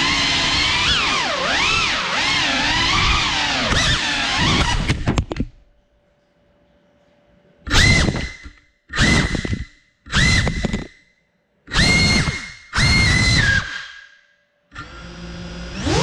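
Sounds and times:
drone motors whining: 0.0s - 5.1s, 7.7s - 11.0s, 11.7s - 14.2s, 14.8s - 16.0s
faint hum: 5.1s - 8.9s.

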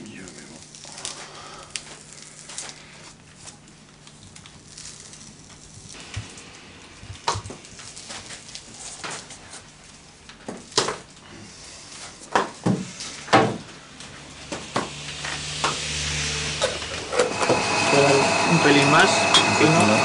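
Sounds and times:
wood splitting cracks and knocks: 10.3s - 11.2s, 12.3s - 13.7s.

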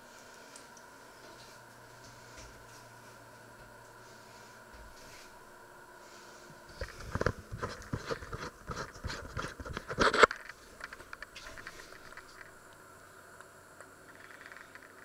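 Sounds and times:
handling rustles and clicks: 6.7s - 12.6s.

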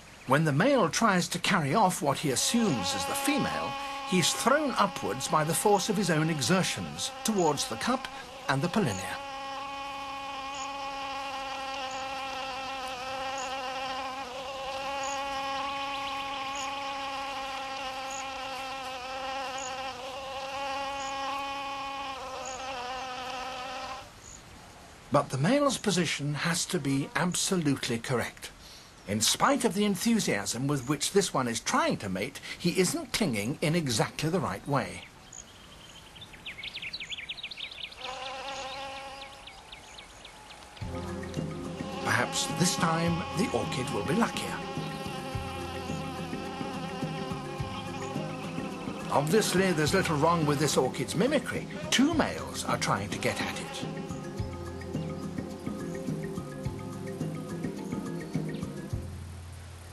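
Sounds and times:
wasp wings buzzing: 2.0s - 24.1s, 37.8s - 39.8s, 40.6s - 59.0s.

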